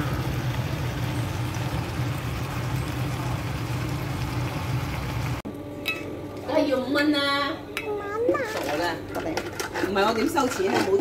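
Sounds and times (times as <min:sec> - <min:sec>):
low mechanical hum: 0:00.0 - 0:11.0.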